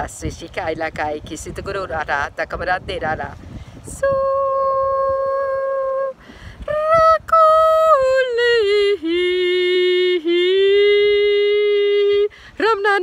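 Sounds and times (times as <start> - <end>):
woman singing wordless notes: 3.8 - 13.0.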